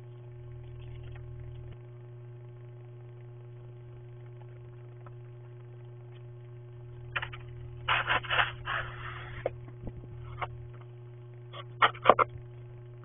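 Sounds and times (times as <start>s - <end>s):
steady low hum: 0.0s - 13.0s
snow shovel scraping snow: 7.9s - 9.4s.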